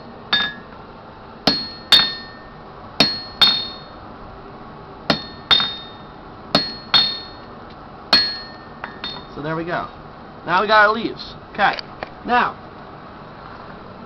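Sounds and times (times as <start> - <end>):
hammer striking chisel on metal: 0.3 - 0.6, 1.5 - 3.9, 5.1 - 7.5, 8.1 - 9.3.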